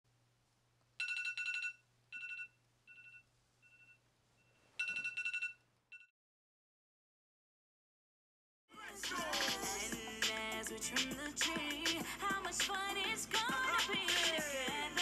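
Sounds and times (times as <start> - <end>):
phone alarm beeping: 1.0 - 6.1.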